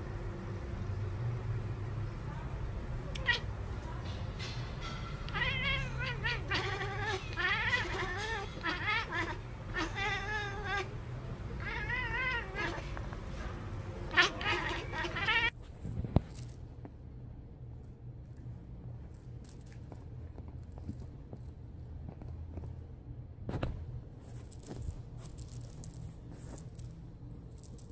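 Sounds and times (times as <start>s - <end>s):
cat warbling meows: 3.2s - 3.5s, 5.3s - 11.0s, 11.6s - 12.9s, 14.1s - 15.5s.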